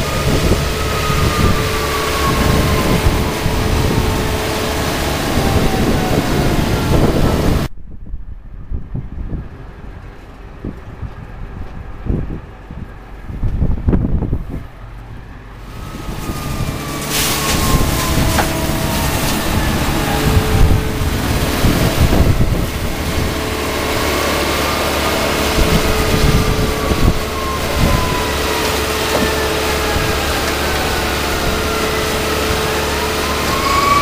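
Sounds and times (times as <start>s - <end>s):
street sweeper engine and hydraulics: 0.0s - 7.7s, 8.3s - 34.0s
thin falling whines: 0.0s - 7.7s, 15.5s - 34.0s.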